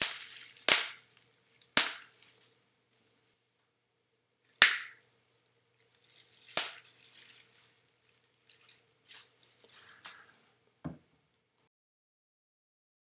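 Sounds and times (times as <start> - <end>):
bubble wrap popping: 0.0 - 2.4, 6.0 - 10.3
plastic crackling: 0.0 - 2.6, 5.3 - 10.4.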